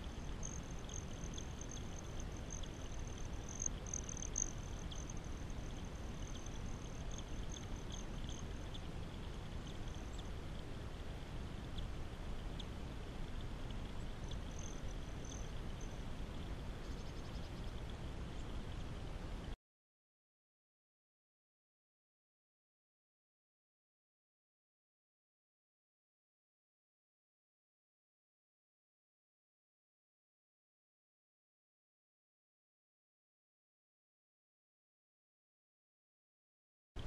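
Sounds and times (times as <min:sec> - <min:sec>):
faint light ticks: 0:00.0 - 0:10.8, 0:11.6 - 0:19.6
water trickling over stones: 0:00.0 - 0:11.0.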